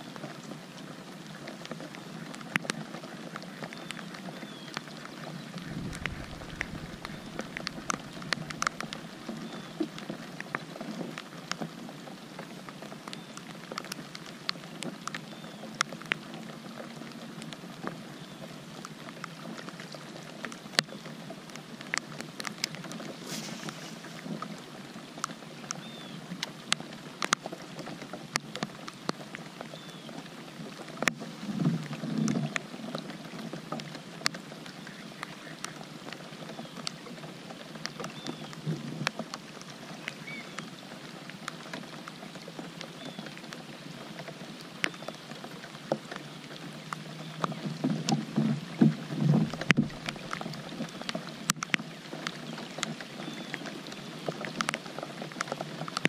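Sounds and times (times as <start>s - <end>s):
rain falling on lake water: 0.0s - 56.0s
sharp ticks of raindrops: 0.0s - 56.0s
low rush: 5.4s - 9.4s.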